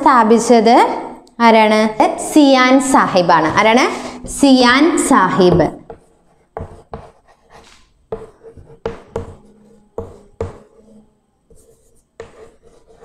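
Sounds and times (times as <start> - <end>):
chalk tapping and scraping on board: 5.6 - 10.9, 11.5 - 13.0.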